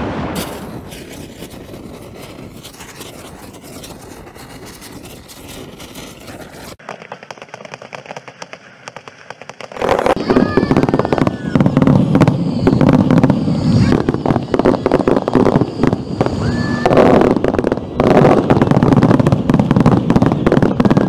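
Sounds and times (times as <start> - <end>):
fireworks crackling and popping: 0.0 - 21.0
loud rumbling: 9.8 - 21.0.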